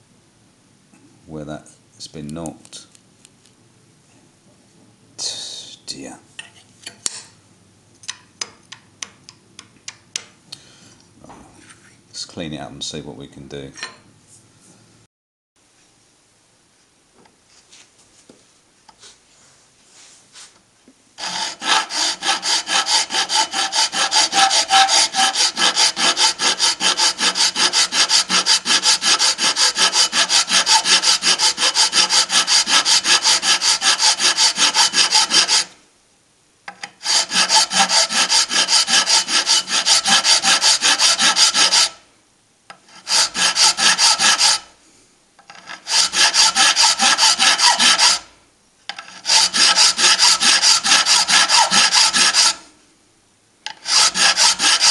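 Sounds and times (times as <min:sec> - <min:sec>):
file scraping metal: 0:21.2 - 0:35.7, 0:36.8 - 0:42.0, 0:42.7 - 0:44.7, 0:45.4 - 0:48.3, 0:48.9 - 0:52.6, 0:53.7 - 0:54.9.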